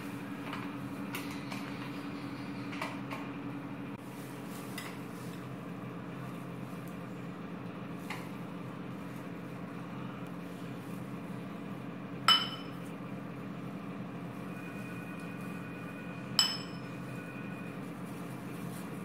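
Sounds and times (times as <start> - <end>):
steady low hum: 0.0 - 19.0
metal spoon clinking on ceramic bowl: 12.3 - 12.8, 16.4 - 16.9.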